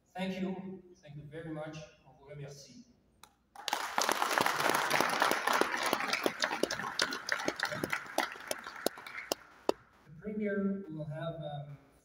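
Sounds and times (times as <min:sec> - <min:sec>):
audience clapping: 0:03.6 - 0:09.8.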